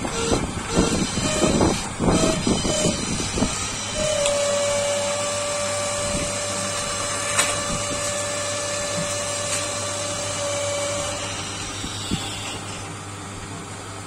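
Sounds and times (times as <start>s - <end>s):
electric workshop machine whining: 0.0s - 13.2s.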